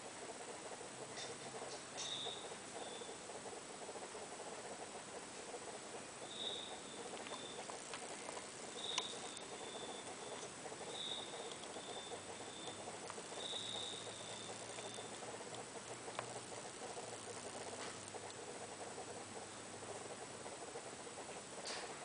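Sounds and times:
faint high chirp: 0:02.0 - 0:03.1, 0:06.2 - 0:07.6, 0:08.7 - 0:12.8, 0:13.4 - 0:15.2.

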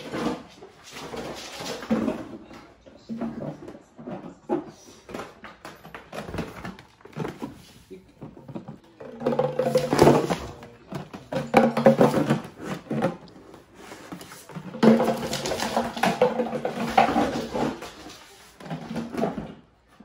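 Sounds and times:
plastic cone scraping and knocking: 0:07.1 - 0:19.6.

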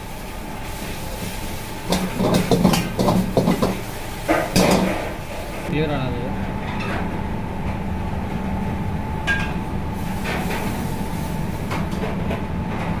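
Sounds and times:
kitchen equipment rumble and hum: 0:00.0 - 0:13.0
thin steady whine: 0:03.0 - 0:12.0.

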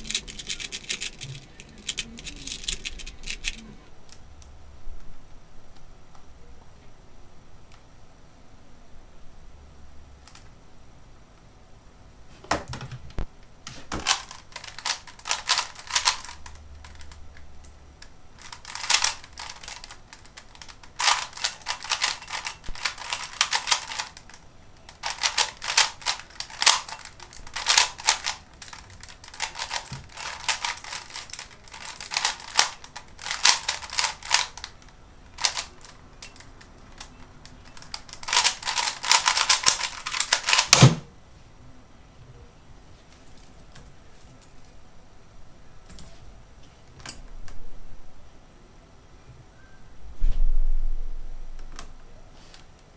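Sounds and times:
puzzle cube clicking: 0:00.0 - 0:03.6, 0:14.1 - 0:17.2, 0:18.4 - 0:34.7, 0:35.4 - 0:40.9.

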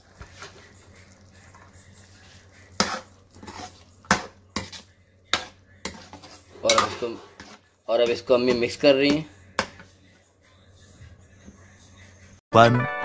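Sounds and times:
spatula scraping a wok: 0:00.0 - 0:09.9.

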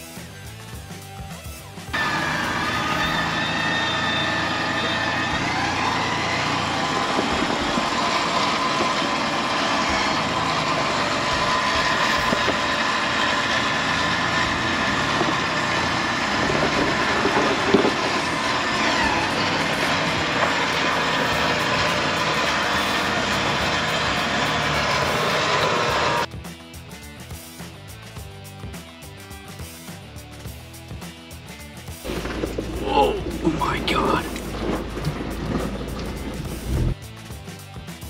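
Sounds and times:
engine revving: 0:01.9 - 0:26.3, 0:32.0 - 0:37.2.

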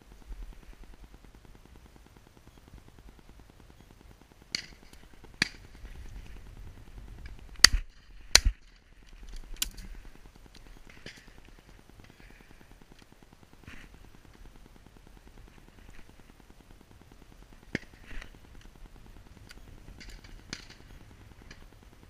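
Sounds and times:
faint sharp cracks: 0:04.4 - 0:06.4, 0:07.2 - 0:14.5, 0:19.4 - 0:21.7.

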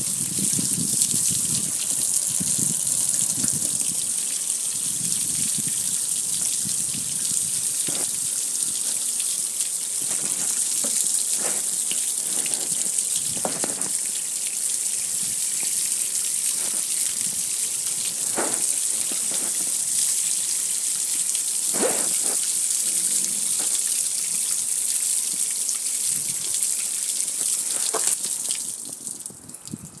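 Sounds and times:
water splashing on metal: 0:00.0 - 0:29.4
hose spray hissing: 0:06.4 - 0:14.2, 0:16.0 - 0:24.0, 0:27.3 - 0:28.3.

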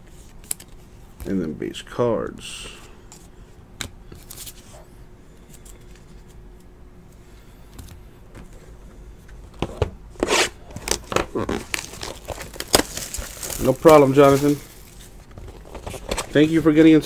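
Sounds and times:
room hum: 0:00.0 - 0:17.0
foil wrapper crinkling: 0:10.8 - 0:16.6.

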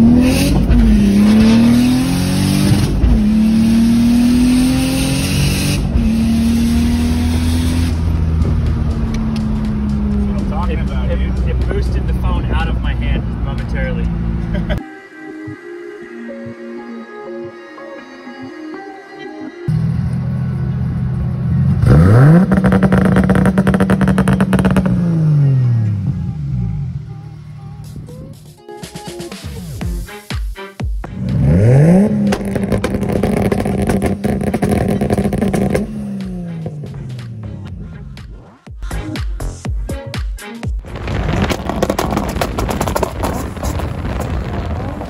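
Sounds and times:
car engine revving under boost: 0:00.0 - 0:10.7, 0:21.7 - 0:27.1, 0:31.1 - 0:36.9.

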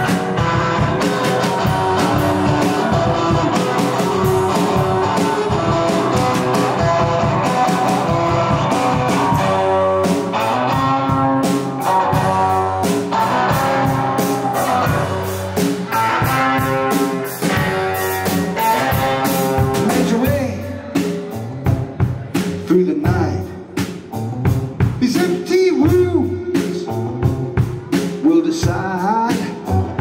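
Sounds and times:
man singing: 0:00.0 - 0:05.6, 0:19.6 - 0:21.8, 0:22.6 - 0:23.8, 0:24.9 - 0:30.0
drum kit: 0:00.0 - 0:30.0.

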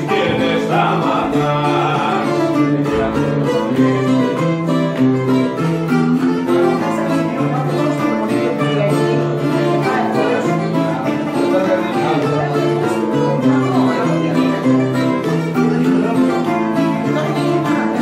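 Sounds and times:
acoustic guitar strumming: 0:00.0 - 0:18.0
plucked lute: 0:00.0 - 0:18.0.

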